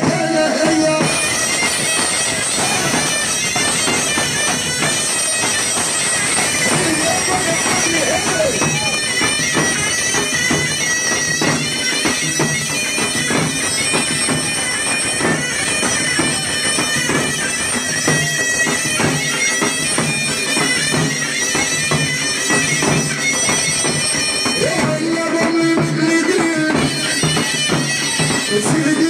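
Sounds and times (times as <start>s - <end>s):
hand drums beat: 0.0s - 14.6s, 22.7s - 29.0s
droning bagpipe melody: 0.0s - 29.0s.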